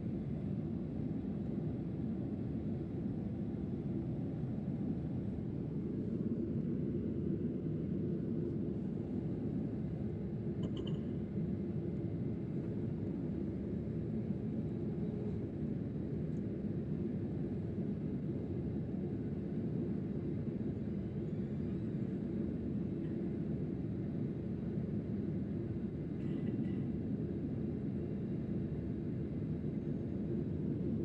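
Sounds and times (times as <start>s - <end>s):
airplane cabin roar: 0.0s - 10.6s.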